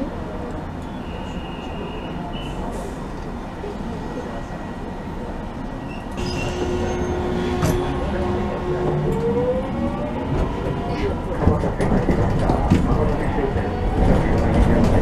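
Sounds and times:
streetcar rumbling on tracks: 0:00.0 - 0:15.0
held tone: 0:06.2 - 0:09.2.

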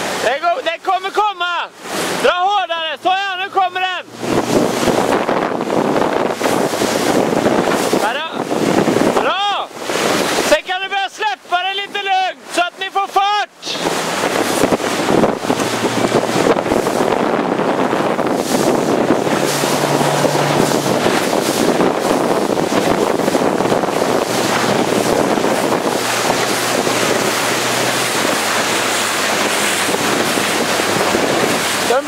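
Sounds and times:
rushing water and spray: 0:00.0 - 0:32.0
wind buffeting microphone: 0:03.8 - 0:10.8, 0:13.5 - 0:32.0.

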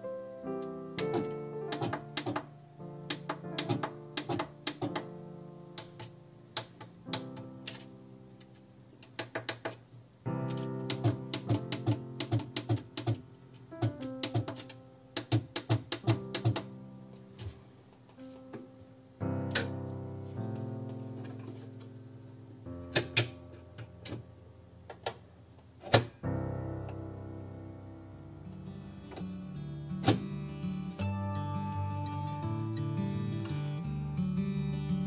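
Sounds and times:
background music with plucked notes: 0:00.0 - 0:08.6, 0:10.3 - 0:17.6, 0:18.2 - 0:24.3, 0:26.2 - 0:35.0
sewing machine buttons clicking: 0:01.0 - 0:02.5.

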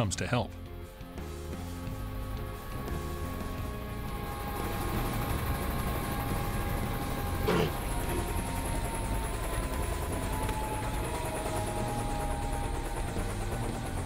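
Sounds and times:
helicopter turbine whine: 0:00.0 - 0:14.0
low rotor rumble: 0:00.4 - 0:14.0.

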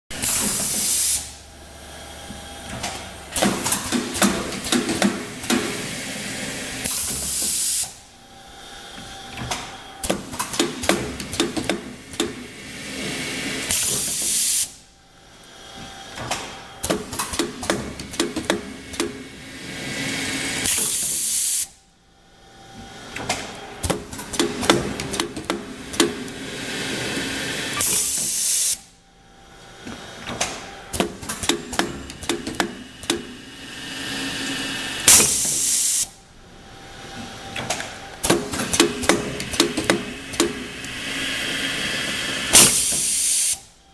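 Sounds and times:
pneumatic machine clicks and clacks: 0:00.1 - 0:01.4, 0:02.2 - 0:08.0, 0:09.0 - 0:14.8, 0:15.8 - 0:21.8, 0:22.8 - 0:28.9, 0:29.8 - 0:33.4, 0:35.0 - 0:36.2, 0:37.1 - 0:43.7
compressed air hiss: 0:00.2 - 0:01.4, 0:05.5 - 0:08.0, 0:13.3 - 0:14.8, 0:19.8 - 0:21.7, 0:33.7 - 0:36.2, 0:41.0 - 0:43.7.

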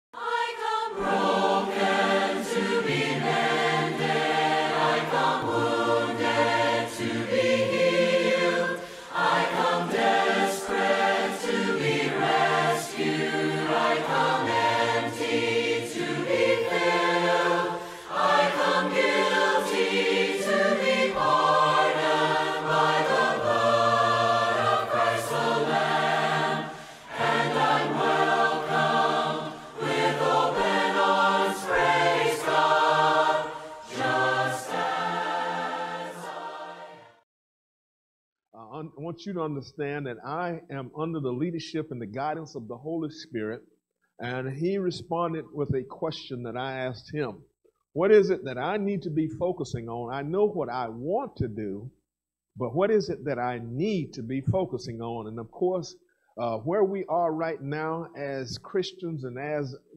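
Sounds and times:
choir singing held chords: 0:00.2 - 0:37.2.

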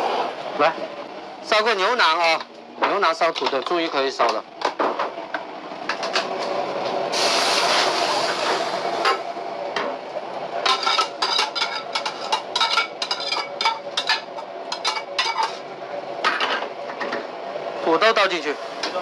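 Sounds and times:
liquid sizzling in a hot wok: 0:07.1 - 0:09.0, 0:10.6 - 0:15.6
metal pot clanking against wok: 0:10.6 - 0:15.6.

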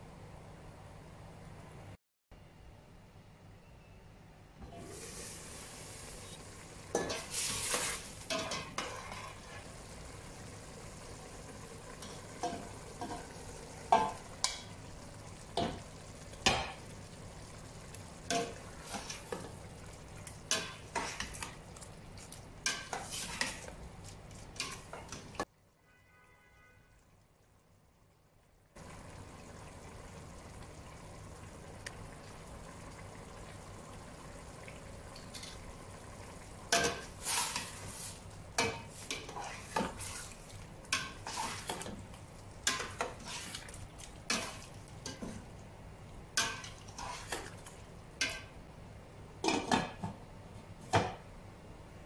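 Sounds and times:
cooking pot hissing: 0:04.7 - 0:21.5, 0:22.8 - 0:23.7, 0:36.9 - 0:41.9, 0:42.7 - 0:43.7, 0:46.8 - 0:47.6
spoon scraping metal pot: 0:46.6 - 0:47.5.

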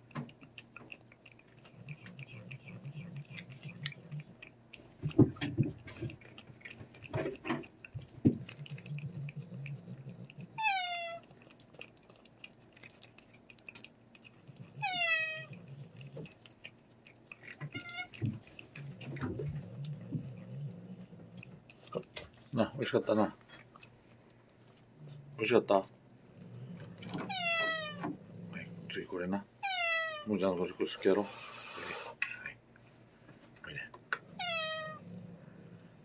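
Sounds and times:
cat licking and lapping: 0:00.0 - 0:29.3, 0:30.3 - 0:36.0
cat meowing: 0:10.6 - 0:11.2, 0:14.8 - 0:15.6, 0:17.7 - 0:18.2, 0:27.2 - 0:28.1, 0:29.6 - 0:30.3, 0:34.3 - 0:35.0.

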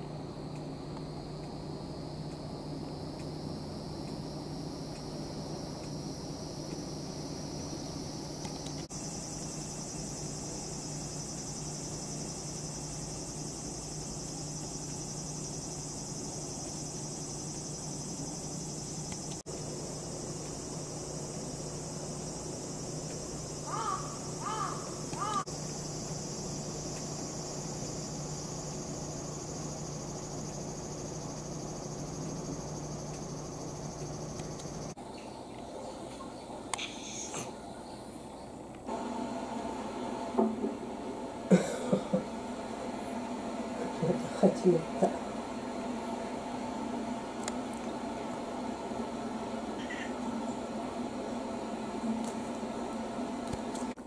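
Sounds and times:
insects chirping chorus: 0:00.0 - 0:35.5
constant low hum: 0:00.0 - 0:54.0
bird calls: 0:23.6 - 0:25.5.

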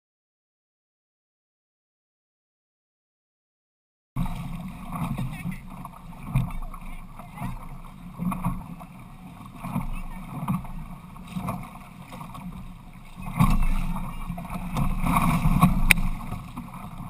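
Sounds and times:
water slapping against boat hull: 0:04.2 - 0:17.0
wind on microphone: 0:04.2 - 0:17.0.

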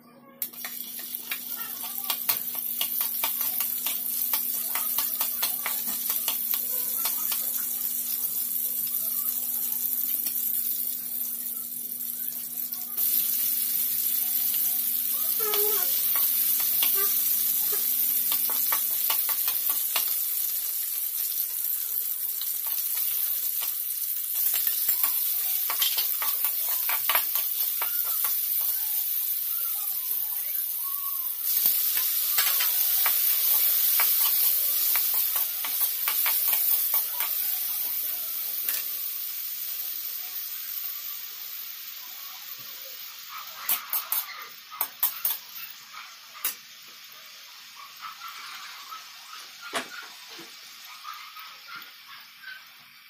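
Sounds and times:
vegetables sizzling in hot oil: 0:00.4 - 0:53.0
spatula clicking against wok: 0:00.6 - 0:07.5, 0:18.2 - 0:20.2, 0:24.4 - 0:28.8, 0:31.7 - 0:37.4.

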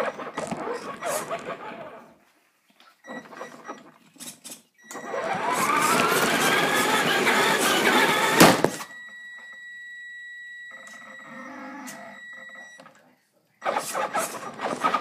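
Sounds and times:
toy car motor and gears whining: 0:00.0 - 0:02.1, 0:04.5 - 0:08.9, 0:13.6 - 0:15.0.

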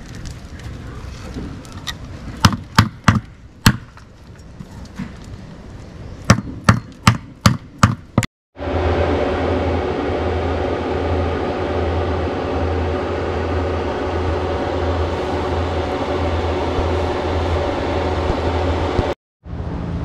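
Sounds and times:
pulsing electrical hum: 0:07.3 - 0:20.0
cooling fan whir: 0:08.6 - 0:20.0.

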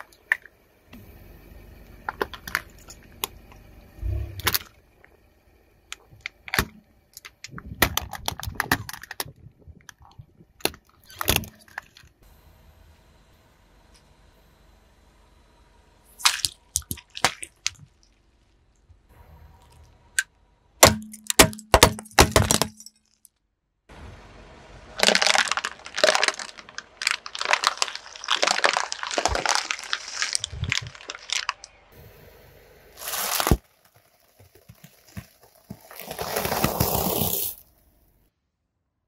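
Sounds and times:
objects crunching under car tyre: 0:24.9 - 0:32.0, 0:33.0 - 0:37.9.

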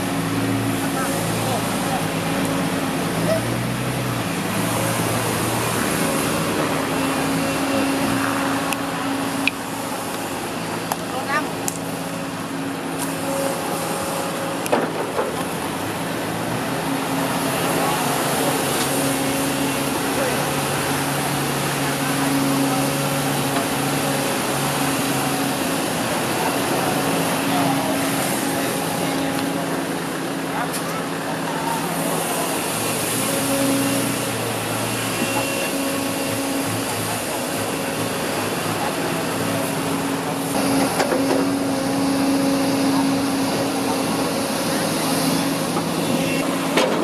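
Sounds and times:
diesel truck engine running: 0:00.0 - 0:47.0
hydraulic hoist: 0:39.1 - 0:47.0.

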